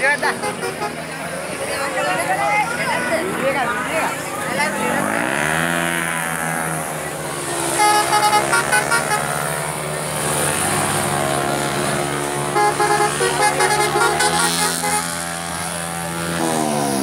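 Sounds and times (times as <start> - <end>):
vehicle engines running: 0.0 - 17.0
car horn tooting: 0.2 - 1.1, 7.7 - 9.5, 12.4 - 15.6.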